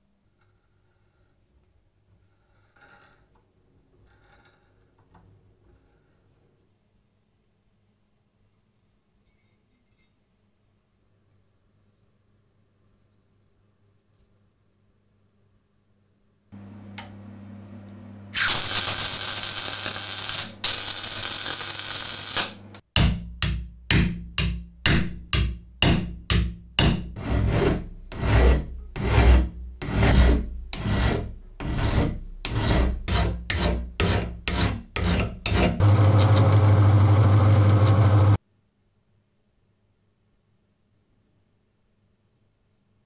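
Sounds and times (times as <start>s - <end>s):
hand file strokes on steel: 26.8s - 35.8s
harsh scraping noise: 27.1s - 38.4s
drill press running: 35.8s - 38.4s.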